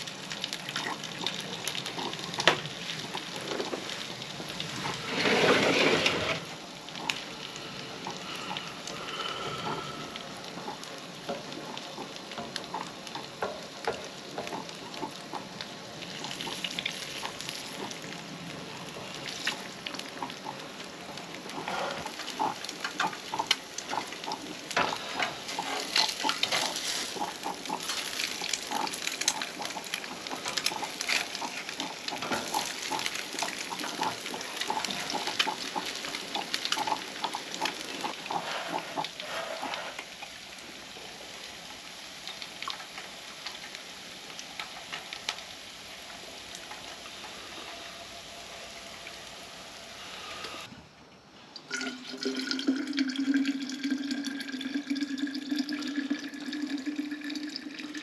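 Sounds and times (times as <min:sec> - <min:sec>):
eggs sizzling in a frying pan: 0:00.0 - 0:50.7, 0:51.5 - 0:58.0
coffee pouring into a flask: 0:51.6 - 0:58.0.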